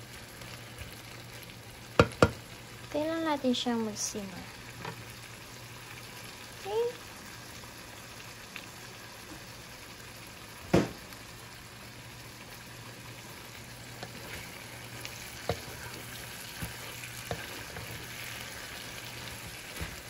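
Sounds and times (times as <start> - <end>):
shrimp sizzling in a frying pan: 0.0 - 20.0
spatula knocking on pan: 2.0 - 2.4
spatula tapping and scraping pan: 2.0 - 2.4, 15.1 - 16.0, 16.6 - 18.1.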